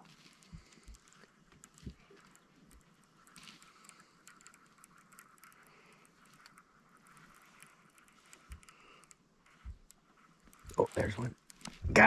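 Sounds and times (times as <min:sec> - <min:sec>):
tiny ticks: 0:00.0 - 0:11.8
soft low thumps: 0:11.8 - 0:12.0.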